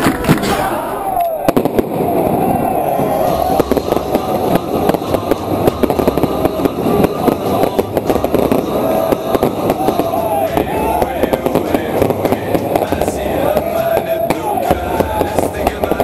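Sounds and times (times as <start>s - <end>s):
crowd shouting and chanting: 0.0s - 16.0s
firecrackers going off: 0.0s - 16.0s.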